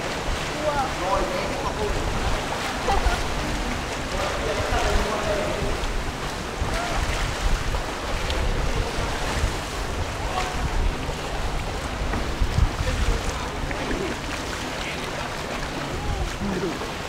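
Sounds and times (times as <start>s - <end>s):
water lapping around kayak: 0.0s - 17.0s
wind on microphone: 0.0s - 17.0s.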